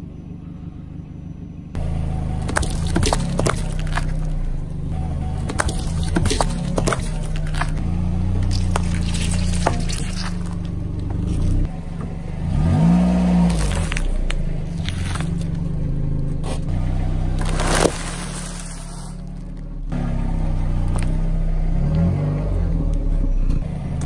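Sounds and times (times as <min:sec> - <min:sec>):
car engine humming: 0:00.0 - 0:24.0
tyre crushing cartons: 0:02.4 - 0:04.4, 0:05.4 - 0:11.6, 0:13.3 - 0:15.6, 0:17.4 - 0:19.6.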